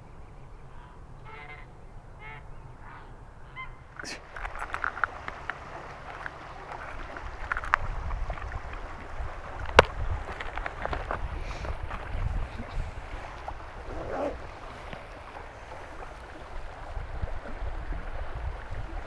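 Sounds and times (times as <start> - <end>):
geese honking: 1.2 - 3.8
stream water flowing: 2.8 - 19.0.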